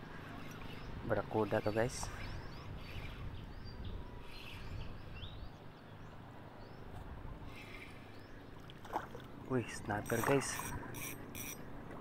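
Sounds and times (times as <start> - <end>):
wind: 0.0 - 12.0
water noise: 6.9 - 12.0.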